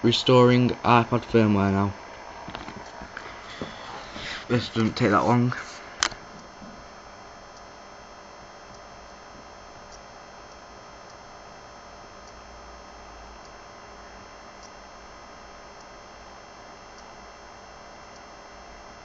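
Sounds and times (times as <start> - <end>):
electrical hum and hiss: 0.0 - 19.0
faint ticks: 12.2 - 12.5, 14.2 - 14.9, 16.9 - 17.2, 18.1 - 18.4.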